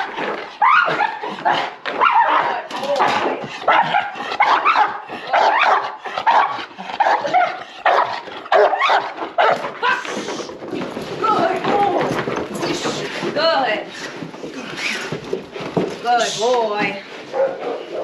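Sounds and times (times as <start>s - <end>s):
dog barking with whining edge: 1.9s - 2.7s, 3.7s - 9.8s, 17.3s - 18.0s.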